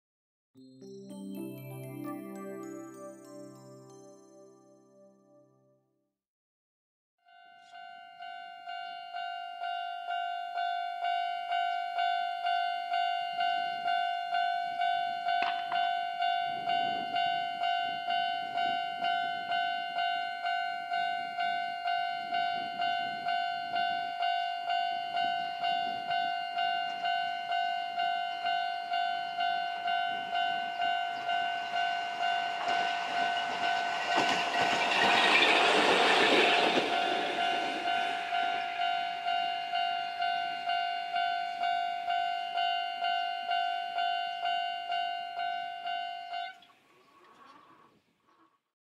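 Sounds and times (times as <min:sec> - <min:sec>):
level crossing alarm bell ringing: 0:07.3 - 0:46.6
train passing by: 0:13.4 - 0:44.1.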